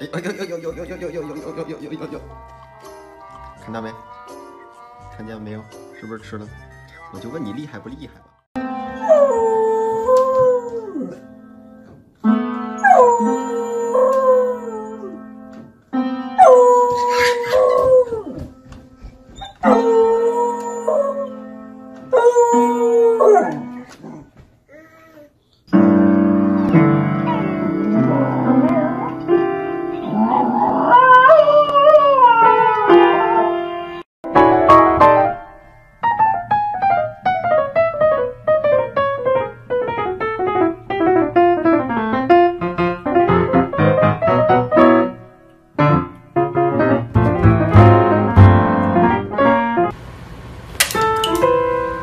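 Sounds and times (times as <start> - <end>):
piano chords: 7.0 - 23.9, 25.7 - 52.0
dog howling: 12.8 - 15.2, 19.4 - 21.4, 22.1 - 24.3, 30.1 - 33.6
paws on piano keys: 15.4 - 22.2.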